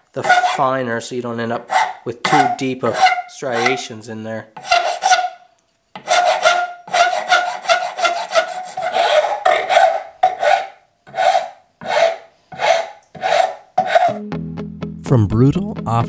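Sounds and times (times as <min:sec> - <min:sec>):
wood file rasping wood: 0:00.2 - 0:00.7, 0:01.7 - 0:03.9, 0:04.6 - 0:05.4, 0:06.0 - 0:14.2.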